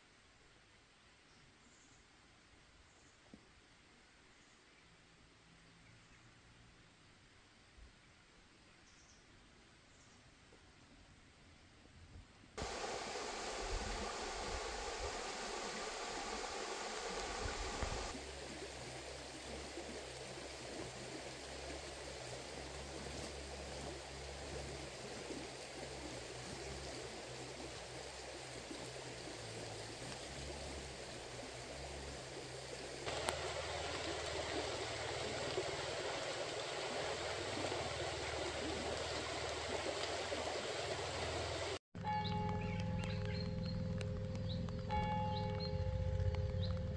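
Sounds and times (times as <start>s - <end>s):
river flowing over stones: 12.6s - 41.8s.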